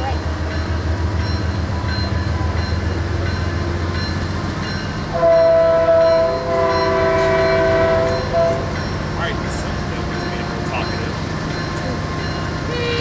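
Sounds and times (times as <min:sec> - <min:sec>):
diesel train engine rumble: 0:00.0 - 0:13.0
train air horn blast: 0:05.1 - 0:08.7, 0:12.7 - 0:13.0.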